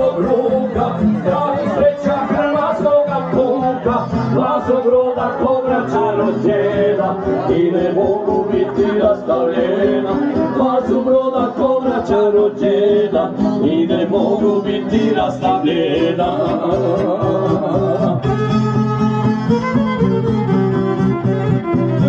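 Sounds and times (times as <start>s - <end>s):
man singing into microphone: 0.0s - 18.3s
violin: 13.2s - 22.0s
plucked strings: 14.6s - 22.0s.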